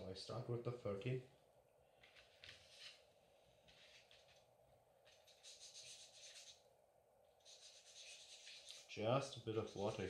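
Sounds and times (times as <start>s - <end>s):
scratchy rubbing on sandpaper: 5.1s - 6.6s, 7.4s - 10.0s.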